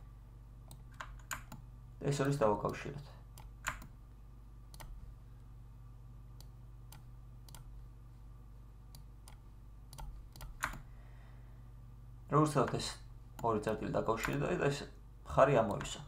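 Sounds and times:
low steady hum: 0.0s - 16.0s
computer mouse clicking: 0.7s - 1.6s, 2.2s - 4.0s, 4.7s - 5.0s, 6.4s - 7.7s, 8.9s - 10.9s, 13.4s - 14.5s, 15.6s - 16.0s.

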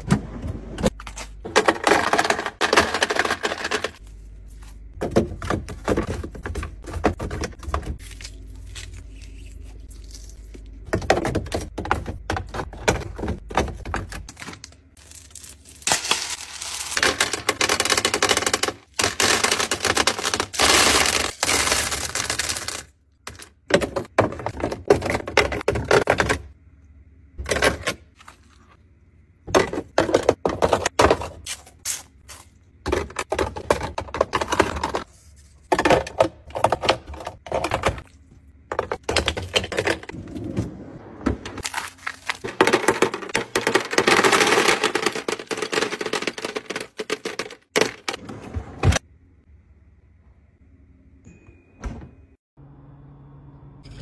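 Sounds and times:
ice clinking into plastic bins: 0.8s - 4.0s, 10.9s - 26.5s, 29.5s - 31.5s, 32.3s - 40.2s, 41.6s - 48.2s.

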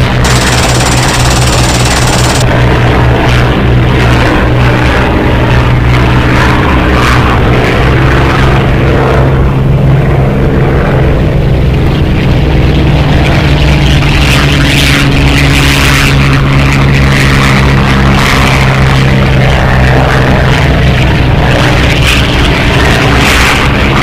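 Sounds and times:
rushing crackling bursts: 0.0s - 3.0s
propeller aircraft engines droning: 0.0s - 24.0s.

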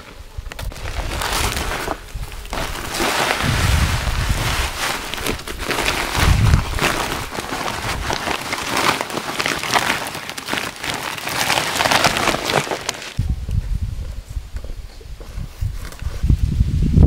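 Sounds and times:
plastic sack rustling: 0.0s - 13.2s
fertilizer grains pouring: 2.5s - 13.2s.

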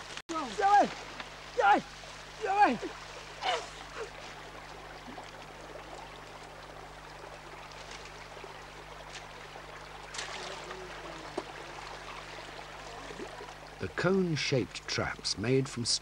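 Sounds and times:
stream running: 0.0s - 16.0s.

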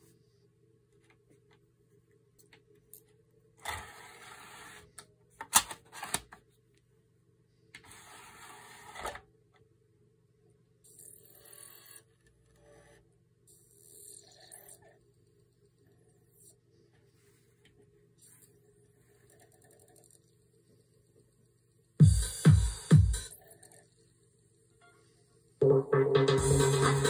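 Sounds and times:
faint steady hum: 23.3s - 25.9s.

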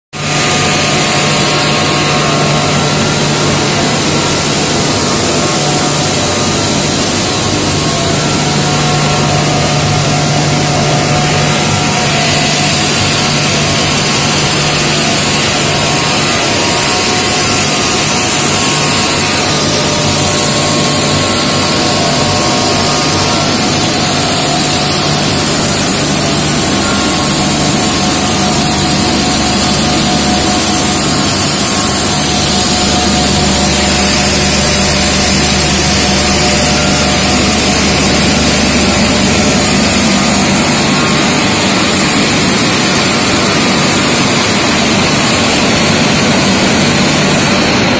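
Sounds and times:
industrial machinery running: 0.1s - 47.9s.

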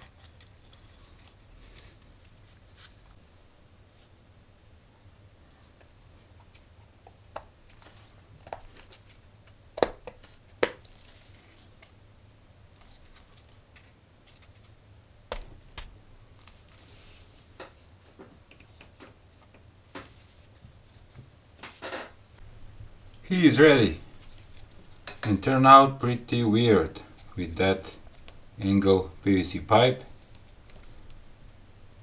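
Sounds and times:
faint low hum: 0.0s - 32.0s.

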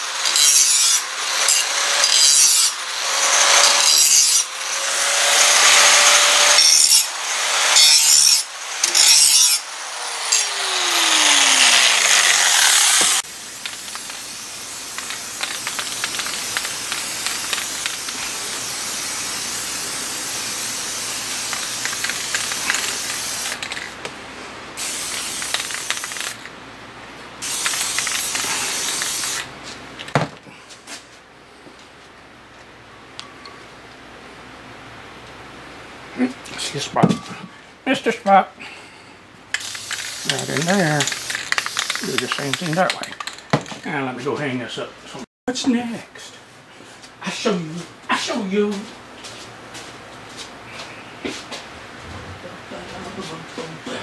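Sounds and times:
handheld grinder sanding metal: 0.0s - 23.8s, 27.4s - 29.4s, 39.6s - 43.4s
aerosol spray can hissing: 10.8s - 23.8s, 24.8s - 26.4s, 27.4s - 29.5s, 39.6s - 43.4s.

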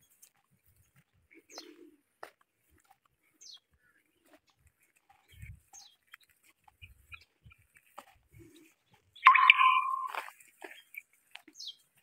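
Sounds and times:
faint bird chirps: 9.2s - 10.9s.

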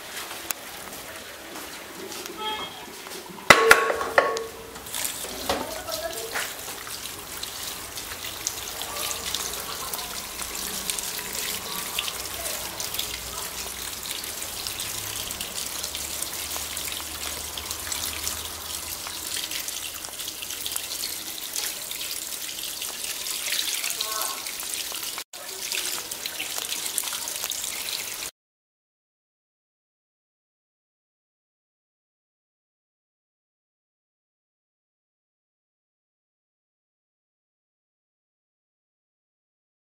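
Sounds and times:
tap water splashing into bowl: 3.0s - 28.2s.

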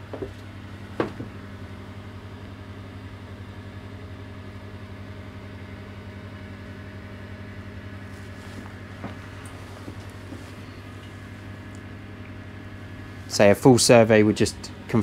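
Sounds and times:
low machinery hum: 0.0s - 15.0s.

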